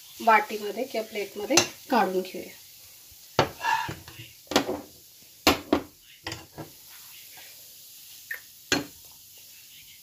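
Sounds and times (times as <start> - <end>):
spoon scraping a pan: 0.5 - 2.0.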